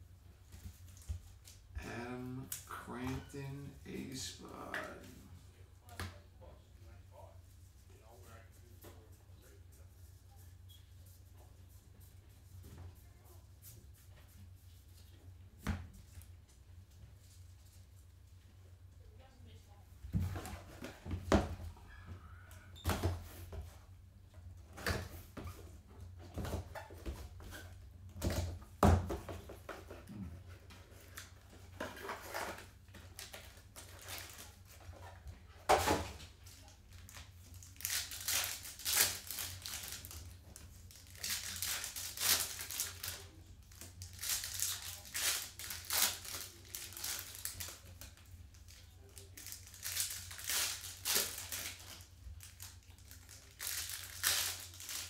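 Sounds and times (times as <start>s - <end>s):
foil wrappers crinkling and tearing: 32.0s - 34.9s, 36.5s - 55.0s.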